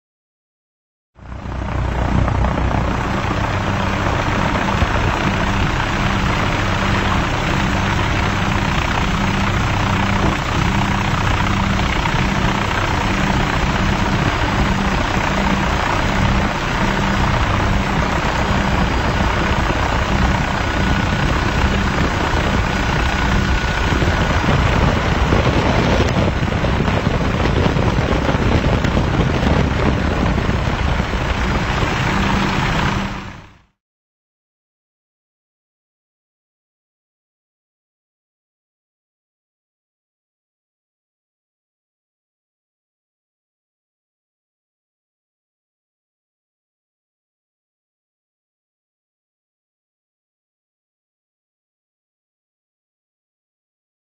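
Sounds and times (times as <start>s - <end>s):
helicopter engine and rotor: 1.2s - 33.7s.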